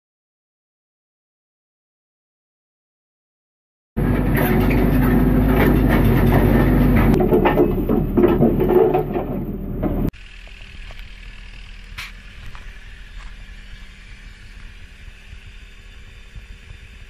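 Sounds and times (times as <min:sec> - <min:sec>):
drill rig engine drone: 0:04.0 - 0:17.0.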